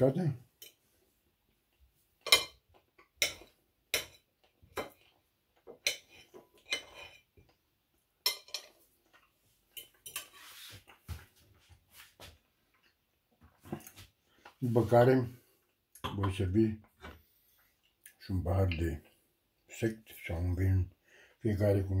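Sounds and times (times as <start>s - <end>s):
knife clinking and scraping on plate: 2.2s - 2.6s, 3.2s - 5.0s, 5.8s - 7.3s, 8.2s - 8.8s, 9.7s - 10.7s.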